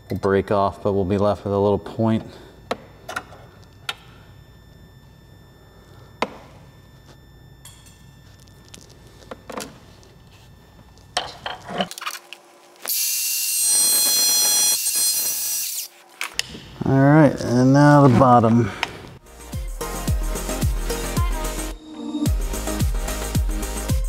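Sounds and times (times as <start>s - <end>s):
angle grinder cutting sheet metal: 12.9s - 15.9s.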